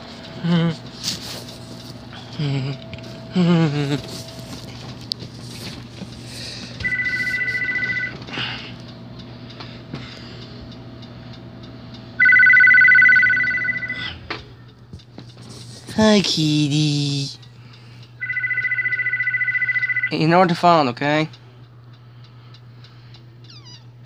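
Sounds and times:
faint electrical hum: 0:00.0 - 0:24.0
telephone ringing: 0:06.8 - 0:08.3, 0:12.2 - 0:14.2, 0:18.2 - 0:20.7.

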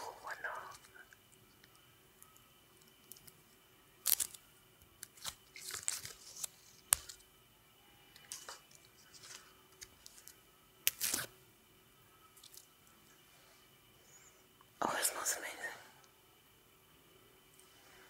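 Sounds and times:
leaf snapping: 0:04.0 - 0:04.4, 0:05.0 - 0:07.2, 0:08.3 - 0:11.3.

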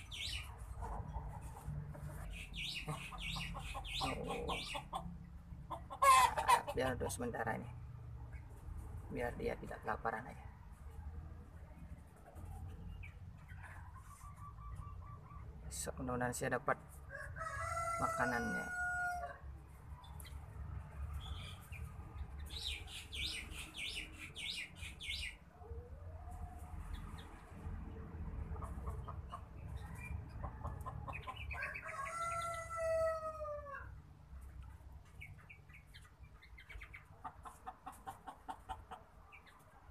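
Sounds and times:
high bird chirps: 0:00.0 - 0:00.6, 0:02.2 - 0:04.9, 0:21.2 - 0:25.4
rooster crowing: 0:17.1 - 0:19.5, 0:31.5 - 0:34.0.

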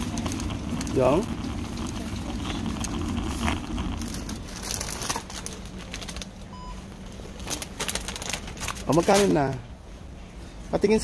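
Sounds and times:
plastic crisp bag crinkling: 0:00.0 - 0:06.5, 0:07.2 - 0:09.6
supermarket background noise: 0:00.0 - 0:11.0
faint electronic beep: 0:06.5 - 0:06.8.

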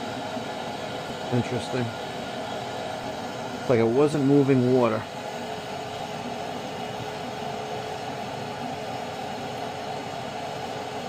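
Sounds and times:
boiler burner rushing: 0:00.0 - 0:11.0.

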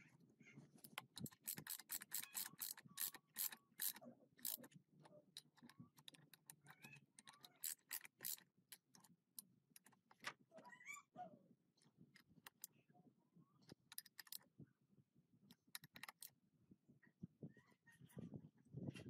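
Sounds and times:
ratchet wrench clicking: 0:01.0 - 0:04.7, 0:07.2 - 0:09.0.

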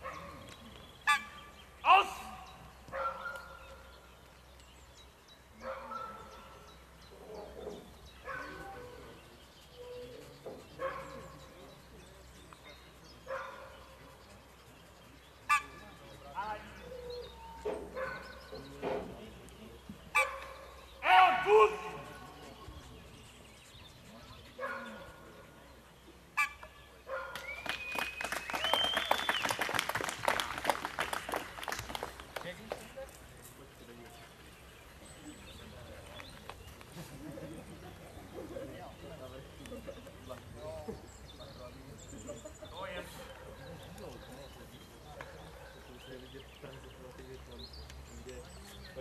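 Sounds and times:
dog barking: 0:02.9 - 0:03.6, 0:05.6 - 0:06.5, 0:13.3 - 0:13.7, 0:24.6 - 0:25.0.

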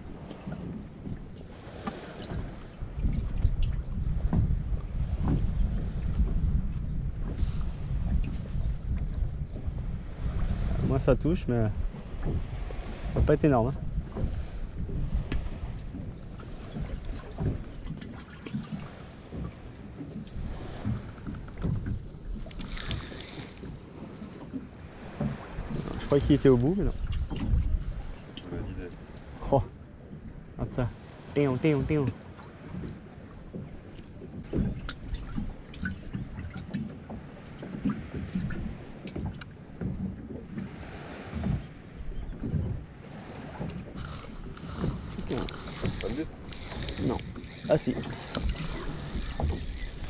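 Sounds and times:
water lapping against boat hull: 0:00.0 - 0:50.0
wind buffeting microphone: 0:00.0 - 0:50.0
fishing reel clicking: 0:22.5 - 0:23.7, 0:44.0 - 0:50.0.

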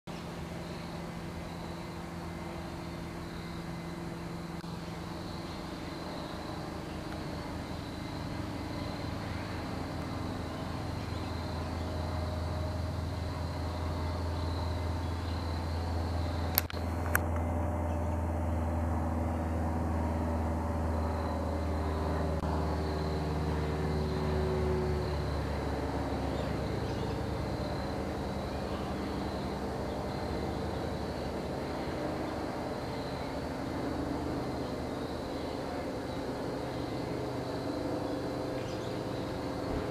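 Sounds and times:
propeller plane droning overhead: 0:00.1 - 0:39.9
sharp clicks: 0:16.5 - 0:17.4.

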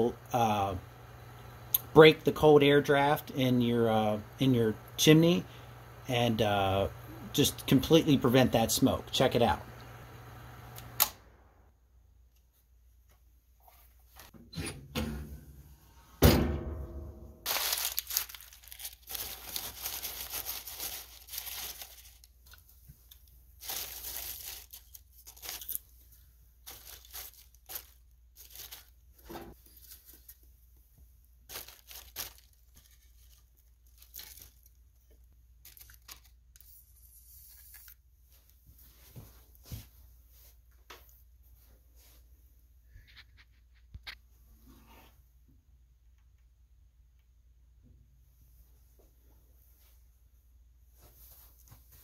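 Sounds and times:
stove door metal clank: 0:16.2 - 0:17.3
newspaper crumpling and tearing: 0:17.5 - 0:25.9, 0:26.6 - 0:30.5, 0:31.4 - 0:34.8, 0:35.6 - 0:36.8.

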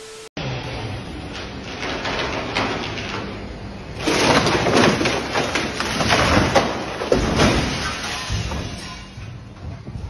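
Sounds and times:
wood snapping and branches breaking: 0:04.0 - 0:08.5.

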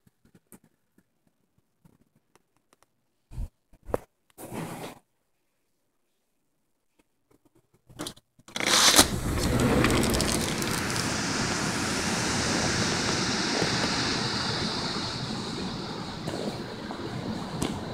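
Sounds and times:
surf breaking on beach: 0:08.6 - 0:17.9
wind buffeting microphone: 0:09.0 - 0:17.9.

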